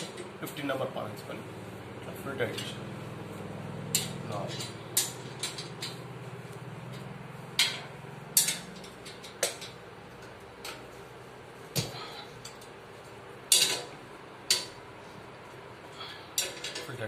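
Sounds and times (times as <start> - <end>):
spanners clanking on metal: 16.0 - 17.0.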